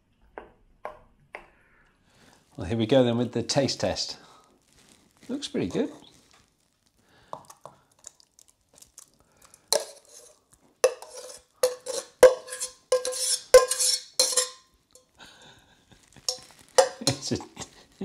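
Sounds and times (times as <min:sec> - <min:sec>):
metal spoon scraping saucepan: 0:09.7 - 0:15.1, 0:16.3 - 0:17.4.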